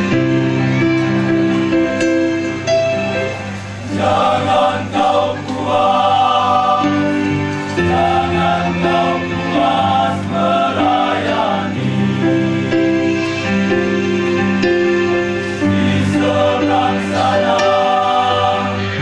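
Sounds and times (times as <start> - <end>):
male choir singing in harmony: 3.8 - 19.0.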